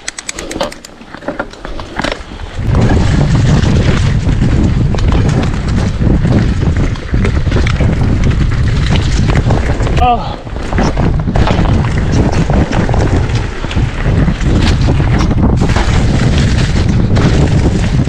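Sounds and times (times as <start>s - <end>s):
low rumble of tyres: 0.2s - 18.0s
wind buffeting microphone: 1.6s - 18.0s.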